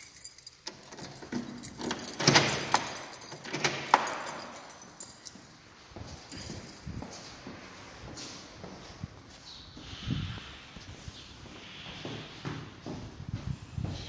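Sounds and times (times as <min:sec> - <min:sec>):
keys jangling: 0:00.0 - 0:07.4.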